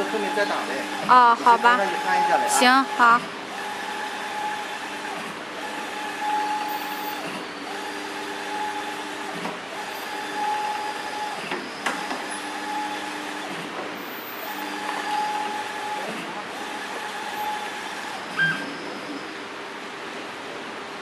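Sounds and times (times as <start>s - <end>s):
printer carriage whine: 0.0s - 21.0s.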